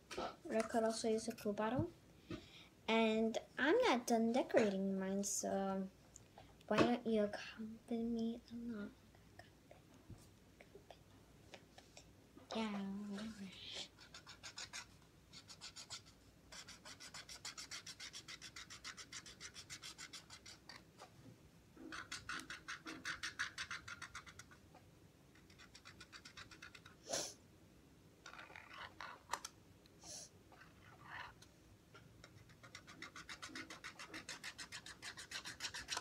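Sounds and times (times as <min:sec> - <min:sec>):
marker drawing on cardboard roll: 0:13.0 - 0:20.8, 0:21.8 - 0:24.6, 0:32.2 - 0:36.0.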